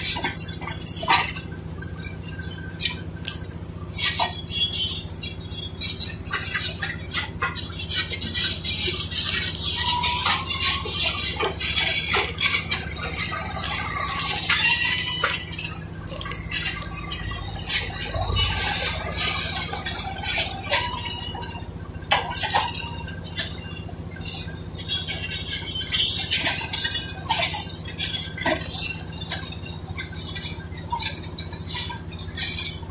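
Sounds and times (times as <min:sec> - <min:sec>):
diesel engine drone: 0:00.0 - 0:32.9
metallic clanks of tracks and rubble: 0:00.0 - 0:32.9.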